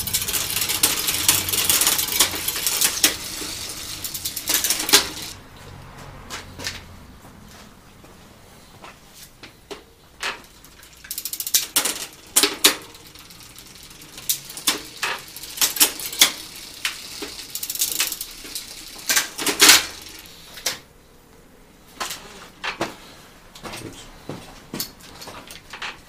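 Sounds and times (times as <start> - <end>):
metal bike parts clinking: 0.0 - 5.4, 9.7 - 20.8.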